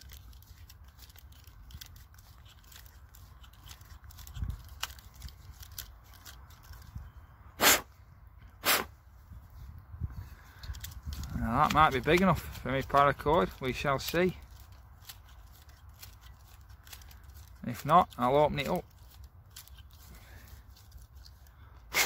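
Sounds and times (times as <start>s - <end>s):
short hissing sounds: 7.6s - 7.9s, 8.6s - 8.9s.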